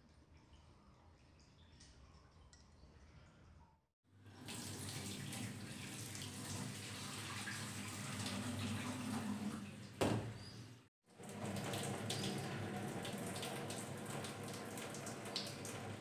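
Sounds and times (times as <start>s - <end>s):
tap water splashing into metal sink: 7.3s - 10.4s, 11.2s - 16.0s.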